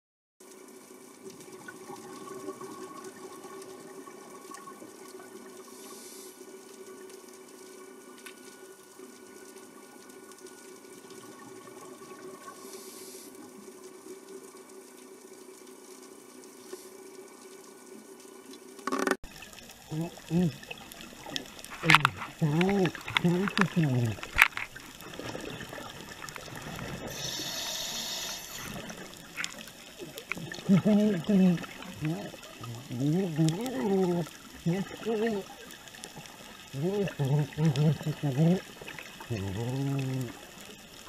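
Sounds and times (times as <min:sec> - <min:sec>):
underwater watery hiss: 0:05.6 - 0:06.7, 0:12.4 - 0:13.6, 0:25.0 - 0:39.3
scuba exhaust bubbles: 0:18.9 - 0:41.0.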